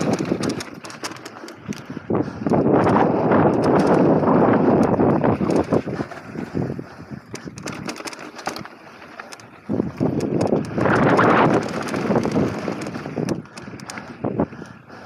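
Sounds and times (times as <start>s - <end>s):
bike chain rattling: 0.0s - 15.0s
tyres rumbling over gravel: 10.6s - 13.3s.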